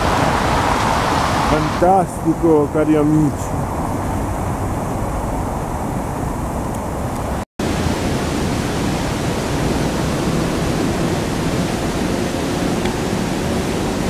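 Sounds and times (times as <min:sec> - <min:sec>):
fountain water splashing: 0:00.0 - 0:03.3, 0:07.6 - 0:14.0.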